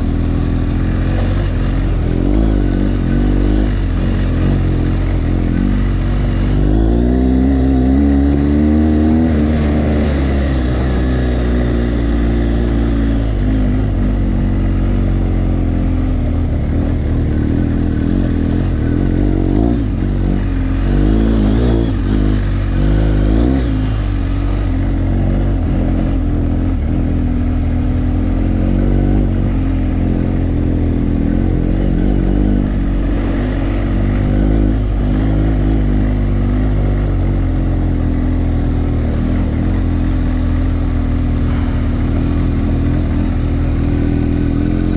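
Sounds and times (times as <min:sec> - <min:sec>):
motorcycle engine revving: 0:00.0 - 0:44.9.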